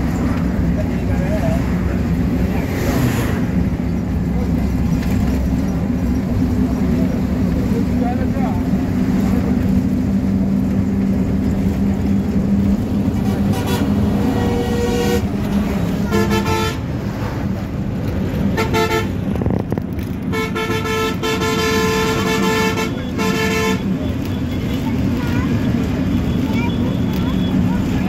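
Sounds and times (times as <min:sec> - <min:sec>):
bus engine and road noise: 0:00.0 - 0:28.0
vehicle horn honking: 0:13.2 - 0:15.3, 0:16.1 - 0:16.9, 0:18.5 - 0:19.2, 0:20.3 - 0:24.0.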